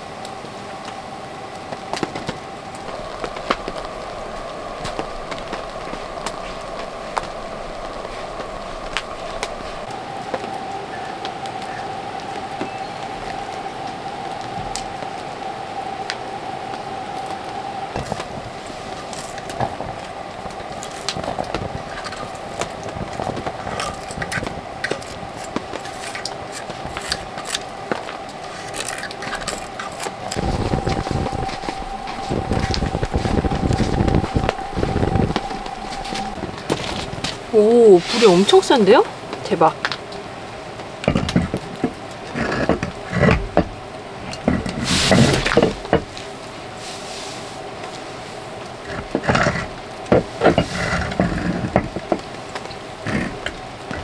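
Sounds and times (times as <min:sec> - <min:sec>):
sawdust fire crackling: 0:00.0 - 0:54.0
stick scraping through sawdust: 0:20.6 - 0:38.8.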